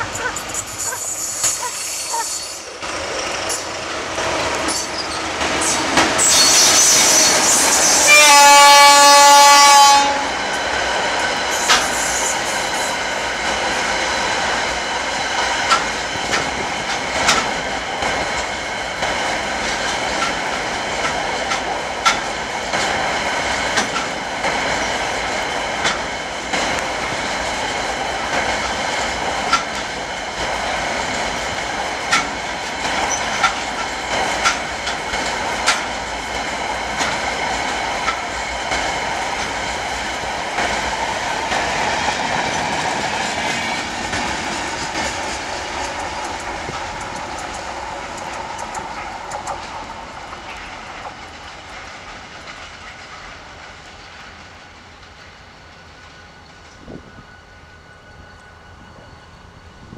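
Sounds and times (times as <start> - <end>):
wheels clicking over rail joints: 0.0 - 56.9
wheels rumbling on rail: 0.0 - 59.9.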